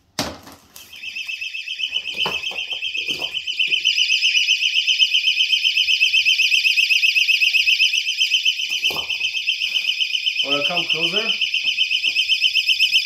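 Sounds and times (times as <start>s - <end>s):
hands rustling in insulation: 8.6s - 12.3s.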